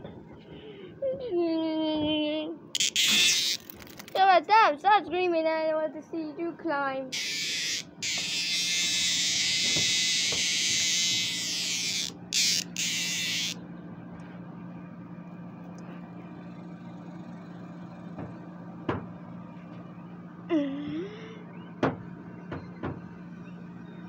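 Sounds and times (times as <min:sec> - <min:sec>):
cicada buzzing: 0:02.8 - 0:04.1, 0:07.1 - 0:13.6.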